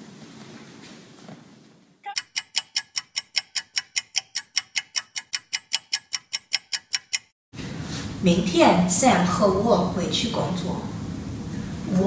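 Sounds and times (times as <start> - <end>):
clock ticking: 2.1 - 7.4.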